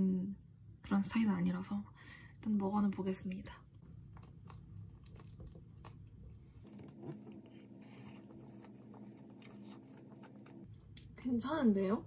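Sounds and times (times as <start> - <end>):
quiet chewing: 3.7 - 11.4.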